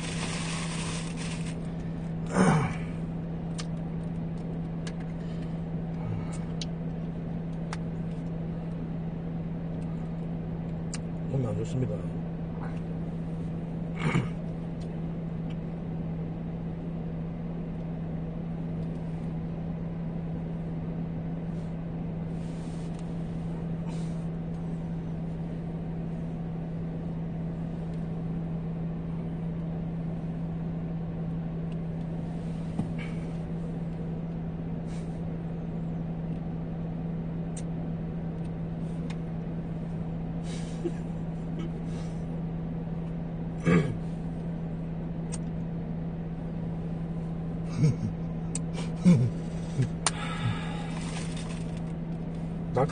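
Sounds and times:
low drone in car cabin: 0:00.0 - 0:52.9
faint rustles and clicks: 0:50.8 - 0:52.6.

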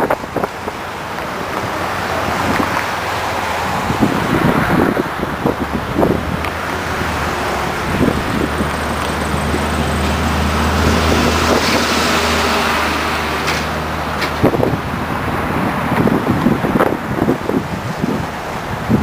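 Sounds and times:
river water rushing over dam: 0:00.0 - 0:19.0
road traffic: 0:00.0 - 0:19.0
vehicle low hum: 0:00.0 - 0:19.0
wind buffeting microphone: 0:00.0 - 0:19.0.

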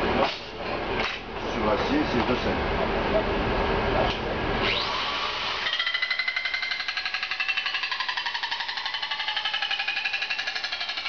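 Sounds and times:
power tool cutting sheet metal: 0:04.6 - 0:11.0.

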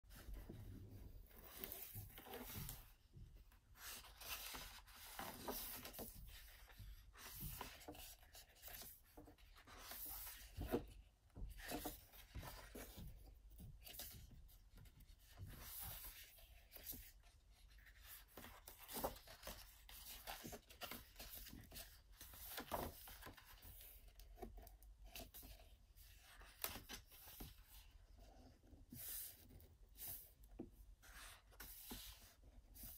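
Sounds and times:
book pages turning: 0:01.3 - 0:02.9, 0:03.8 - 0:10.9, 0:17.7 - 0:28.2.

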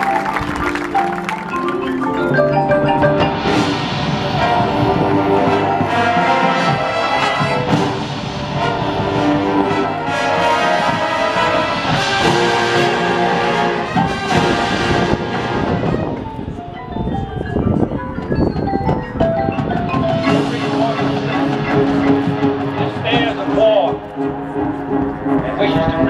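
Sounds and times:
marching band playing: 0:00.0 - 0:26.0.

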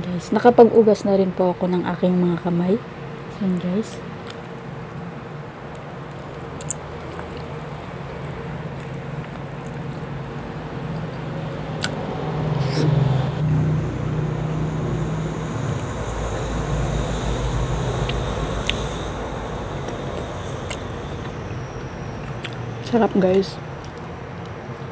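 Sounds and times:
low motor hum: 0:04.4 - 0:24.9
soft chewing clicks: 0:05.7 - 0:12.0.

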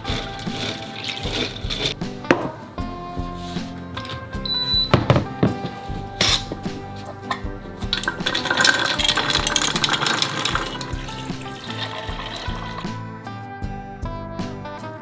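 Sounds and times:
beans and water poured into jug: 0:00.0 - 0:02.0, 0:07.9 - 0:12.9
background music: 0:00.0 - 0:15.0
jug knocking: 0:06.5 - 0:12.9.

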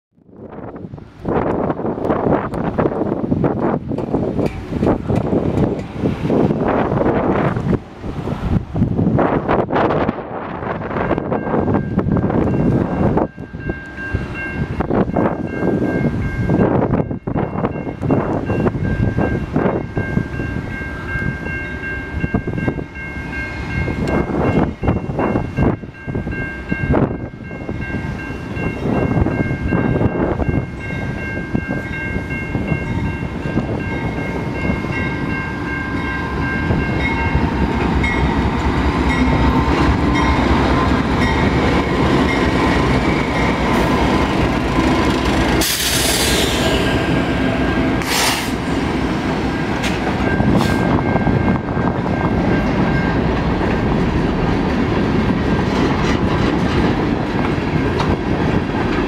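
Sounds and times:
diesel locomotives passing: 0:00.2 - 0:59.0
sharp hiss: 0:45.6 - 0:46.8, 0:48.0 - 0:48.7.

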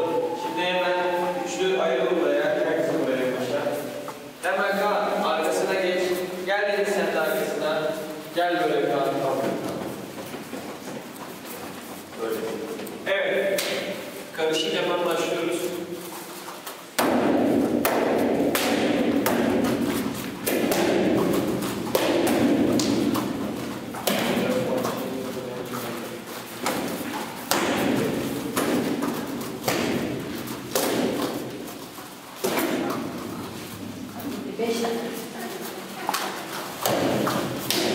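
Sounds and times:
bare feet stamping: 0:09.1 - 0:14.2, 0:15.9 - 0:34.0, 0:36.0 - 0:37.9
uniforms snapping: 0:15.1 - 0:25.1, 0:25.7 - 0:34.5, 0:35.4 - 0:37.9.

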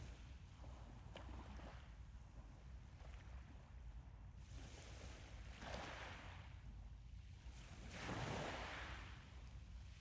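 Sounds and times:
wind rumble on microphone: 0:00.0 - 0:10.0
waves splashing against shore: 0:07.8 - 0:09.3.

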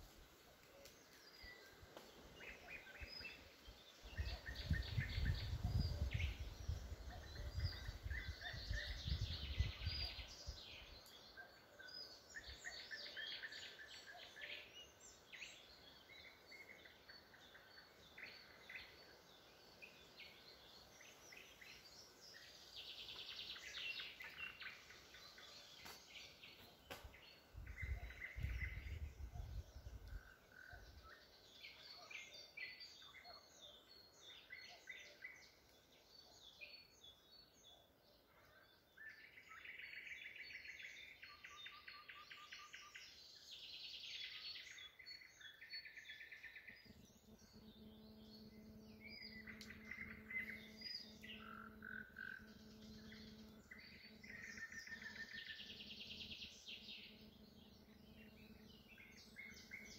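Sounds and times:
songbirds singing: 0:00.0 - 0:59.9.

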